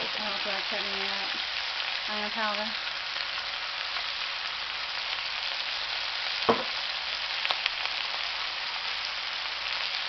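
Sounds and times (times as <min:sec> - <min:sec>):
food sizzling in a wok: 0:00.0 - 0:10.0
sharp knock: 0:06.5 - 0:06.8.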